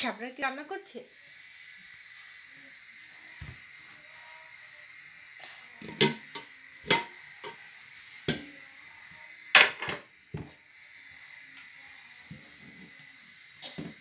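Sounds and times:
metal pots clanking together: 5.8 - 7.6, 9.5 - 10.1.

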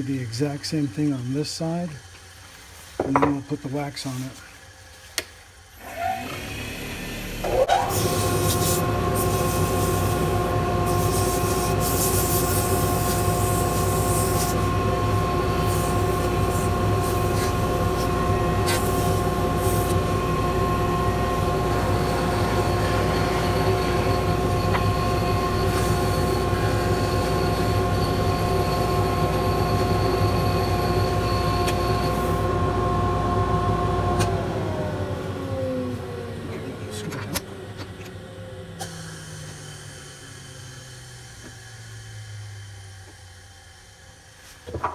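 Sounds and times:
lathe motor whine: 0.0 - 44.4
wood turning hiss: 7.8 - 27.9.

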